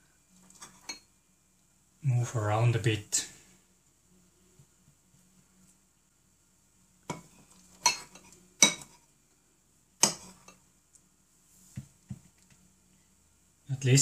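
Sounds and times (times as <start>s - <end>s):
metal spoon clinking on ceramic bowl: 7.8s - 8.9s.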